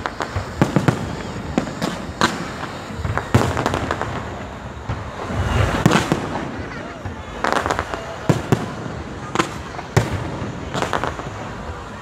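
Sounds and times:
fireworks bangs and crackling: 0:00.0 - 0:12.0.

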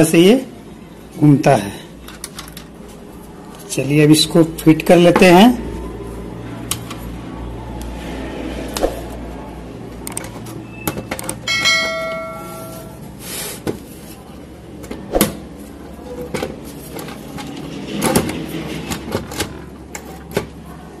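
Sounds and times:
short ringing chime: 0:11.5 - 0:13.0.

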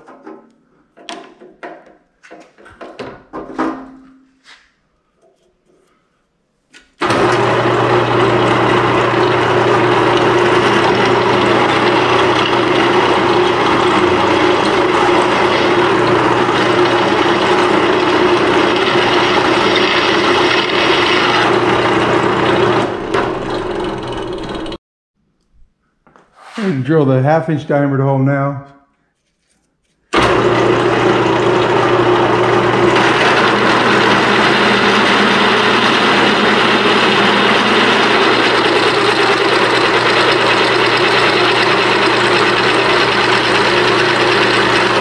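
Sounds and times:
drill bit drilling metal: 0:07.0 - 0:24.8, 0:30.2 - 0:45.0
drill press motor humming: 0:07.0 - 0:24.8, 0:30.2 - 0:45.0.

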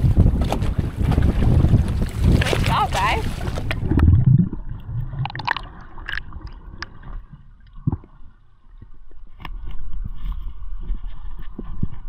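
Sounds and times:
underwater rumbling water: 0:00.0 - 0:12.0.

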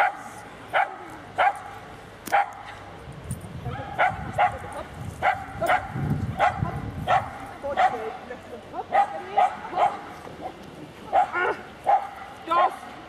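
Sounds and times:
dog barking: 0:00.0 - 0:01.7, 0:02.3 - 0:02.6, 0:04.0 - 0:04.6, 0:05.2 - 0:08.0, 0:08.9 - 0:10.0, 0:11.1 - 0:12.8.

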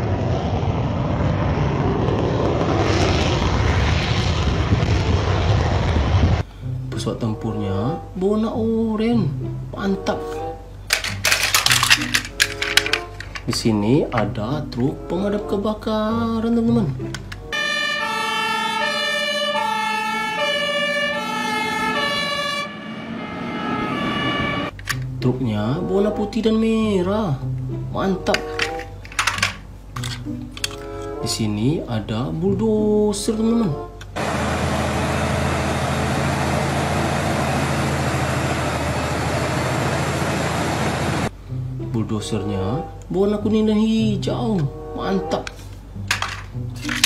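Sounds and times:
steady rushing noise: 0:00.0 - 0:06.4
engine and road noise: 0:00.0 - 0:06.9, 0:09.3 - 0:31.3, 0:33.8 - 0:42.0, 0:44.2 - 0:47.0
two-tone fire engine siren: 0:17.5 - 0:24.8
bulldozer diesel engine: 0:34.2 - 0:41.3.

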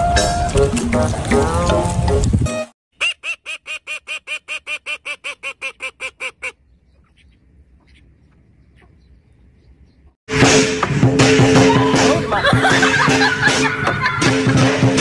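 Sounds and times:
duck quacking: 0:03.0 - 0:08.1.

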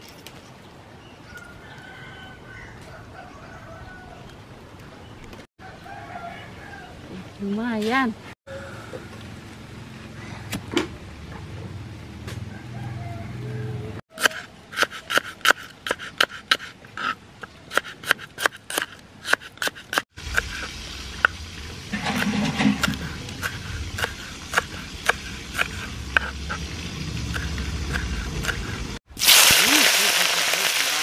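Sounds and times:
knife chopping on wooden board: 0:22.0 - 0:26.6, 0:27.3 - 0:28.8.

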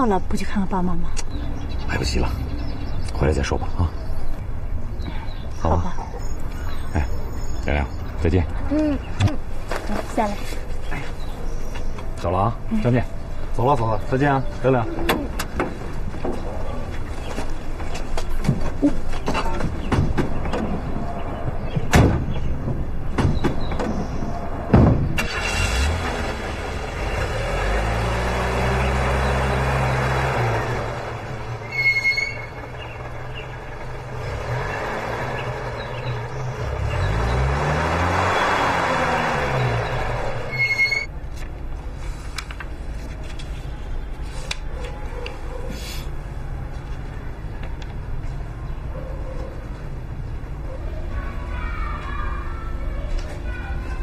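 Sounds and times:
car doors slamming: 0:21.7 - 0:24.0, 0:24.7 - 0:25.3
car engine running: 0:32.3 - 0:41.1
notebook handling clicks and rustles: 0:42.2 - 0:44.6.

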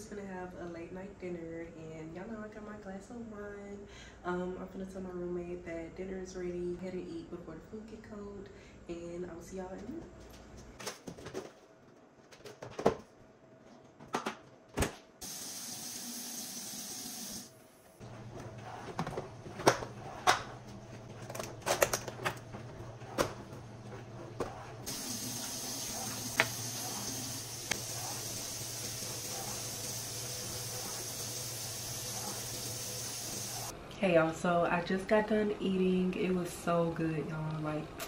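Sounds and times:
tap running into sink: 0:24.9 - 0:27.9.

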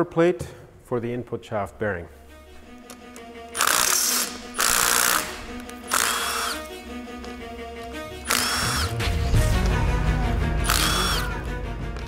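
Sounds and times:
background music: 0:00.0 - 0:12.0
cordless drill whining: 0:03.6 - 0:06.8, 0:08.2 - 0:09.0, 0:10.6 - 0:11.4.

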